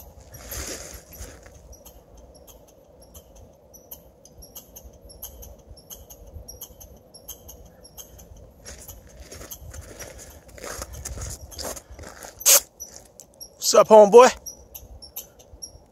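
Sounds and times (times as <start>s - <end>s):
squirrel clicking: 1.5s - 9.7s.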